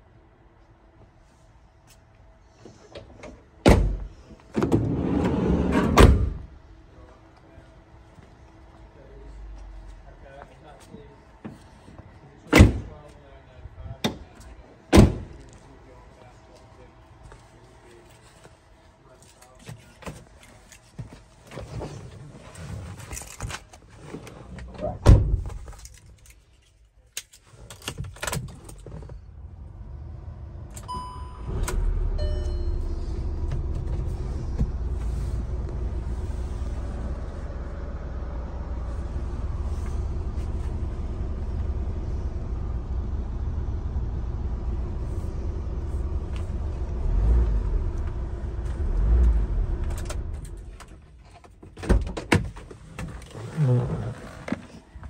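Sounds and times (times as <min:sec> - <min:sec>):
sliding van door clunk: 0:03.2 - 0:06.4
van door slamming: 0:03.6 - 0:05.0, 0:05.7 - 0:06.5, 0:15.0 - 0:15.3
sliding door rumbling along track: 0:04.6 - 0:06.4
van engine starting and idling: 0:29.1 - 0:51.0
dashboard chime: 0:32.2 - 0:33.0.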